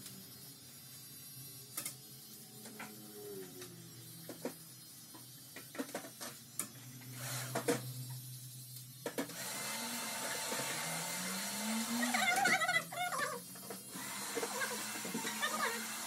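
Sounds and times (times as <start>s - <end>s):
wavering voice-like sound: 3.0s - 3.7s, 11.9s - 13.4s
electric hair trimmer running: 9.3s - 16.0s.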